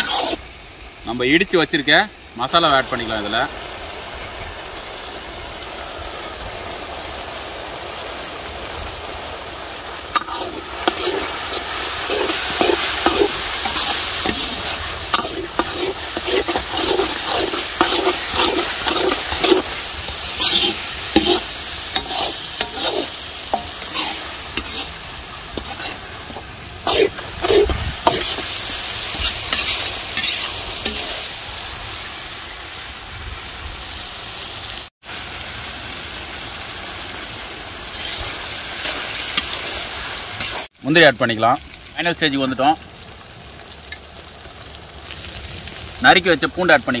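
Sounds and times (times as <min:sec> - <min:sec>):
ladle scraping a pan: 0:00.0 - 0:00.4, 0:10.1 - 0:31.3, 0:37.9 - 0:40.7
meat sizzling in a pan: 0:00.0 - 0:47.0.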